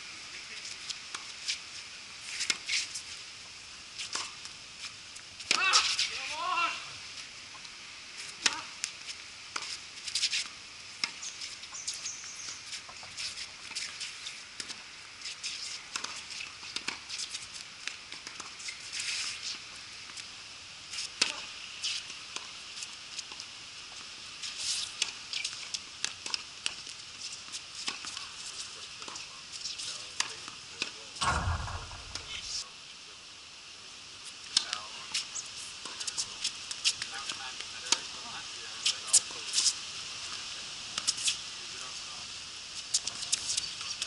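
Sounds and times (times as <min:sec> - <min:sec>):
faint high hiss: 0:27.1 - 0:43.9.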